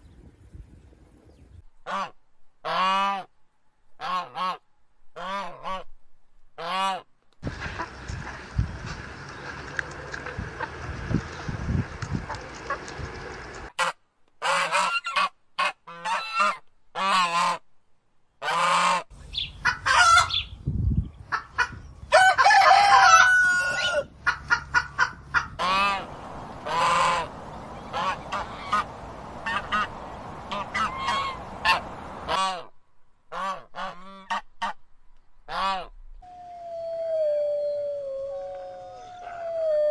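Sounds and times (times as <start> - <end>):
fowl honking calls: 18.4 - 20.5, 21.3 - 32.7.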